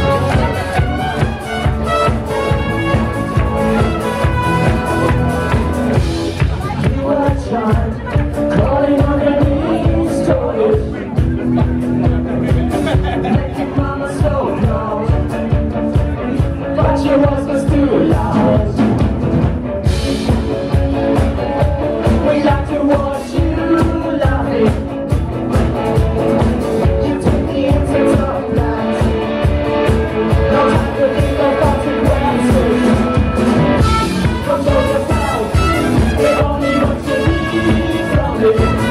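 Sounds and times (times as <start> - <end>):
trumpet: 0.0 - 6.1, 32.6 - 38.9
person singing: 0.0 - 19.0, 20.6 - 25.2, 26.8 - 38.9
bass guitar: 0.0 - 38.9
drum kit: 0.0 - 38.9
electric guitars: 0.0 - 38.9.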